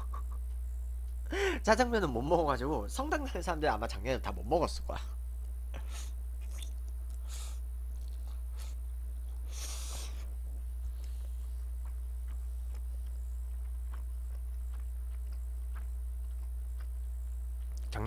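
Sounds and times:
low hum: 0:00.0 - 0:18.0
chewing with mouth clicks: 0:06.4 - 0:07.2, 0:10.8 - 0:18.0.

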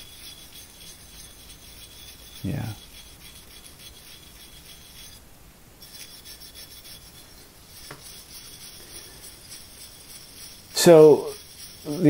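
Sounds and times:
abrasive block scrubbing steel: 0:05.8 - 0:12.0.

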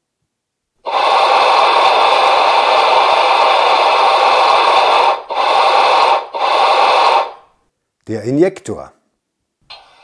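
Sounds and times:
steam hiss from loudspeaker: 0:00.8 - 0:07.5.

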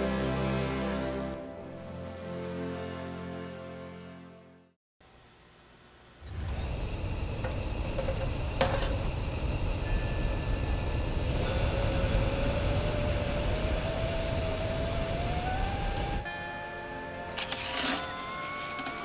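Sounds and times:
gas burner rushing: 0:06.2 - 0:16.3
metal pot clinking on grate: 0:07.4 - 0:09.1, 0:17.3 - 0:19.0
thin rising tone: 0:09.7 - 0:17.8.

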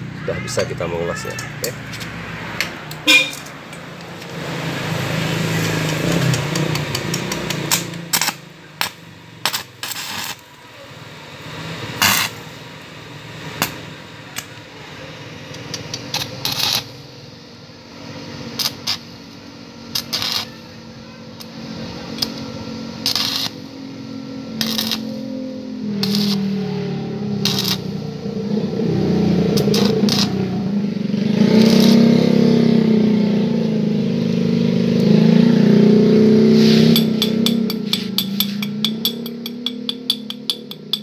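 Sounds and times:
arc welder crackling and popping: 0:01.5 - 0:10.6, 0:12.0 - 0:12.6, 0:13.4 - 0:14.6, 0:15.5 - 0:17.1, 0:18.5 - 0:20.8, 0:21.4 - 0:23.8, 0:24.5 - 0:25.3, 0:26.0 - 0:26.6, 0:27.4 - 0:28.1, 0:29.5 - 0:32.5, 0:36.8 - 0:41.0.

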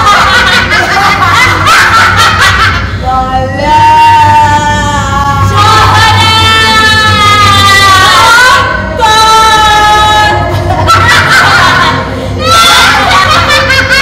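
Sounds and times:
women cackling with laughter: 0:00.0 - 0:03.0, 0:10.1 - 0:14.0.

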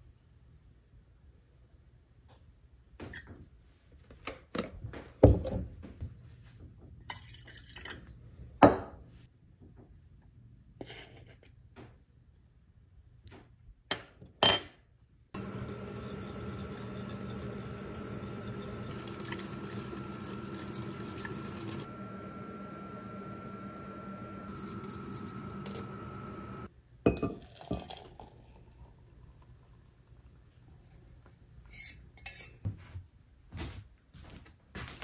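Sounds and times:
cooktop hum with high whine: 0:04.5 - 0:33.2
whisk clinking in saucepan: 0:15.4 - 0:21.9.

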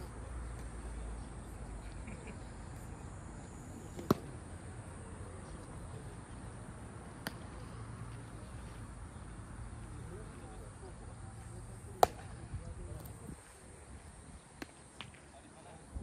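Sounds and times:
outdoor background noise: 0:00.0 - 0:16.0
baseball smacks: 0:03.9 - 0:04.4, 0:07.2 - 0:07.6, 0:12.0 - 0:12.4, 0:14.6 - 0:15.3.

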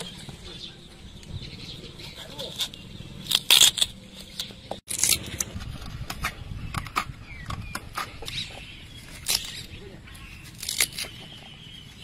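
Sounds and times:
knife scraping sweet potato: 0:08.0 - 0:12.0.

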